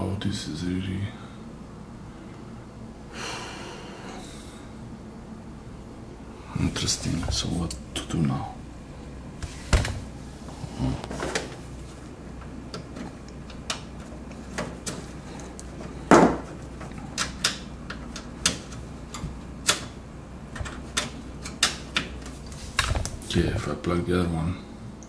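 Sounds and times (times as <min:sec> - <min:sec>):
computer cables clicking and knocking: 0:12.4 - 0:23.2.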